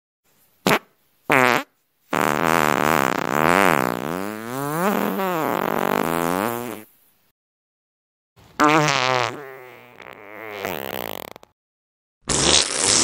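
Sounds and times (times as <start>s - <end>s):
fart sound effect: 0.7s - 6.9s, 8.6s - 11.6s, 12.2s - 13.0s.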